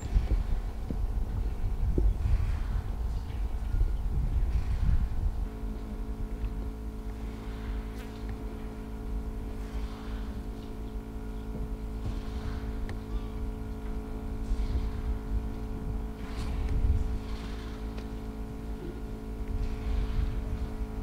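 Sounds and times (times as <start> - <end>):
vehicle engine idling: 5.4 - 21.0.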